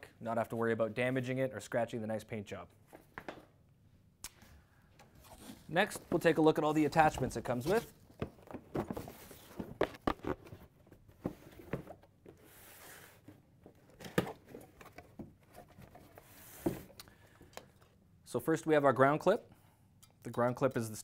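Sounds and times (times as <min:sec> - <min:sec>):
cardboard rustling: 0:05.4 - 0:17.0.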